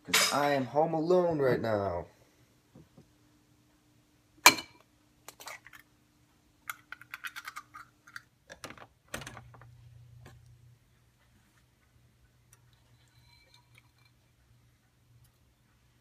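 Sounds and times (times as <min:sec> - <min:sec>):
low steady hum: 0:00.0 - 0:16.0
egg cracking on ceramic bowl: 0:06.6 - 0:08.3.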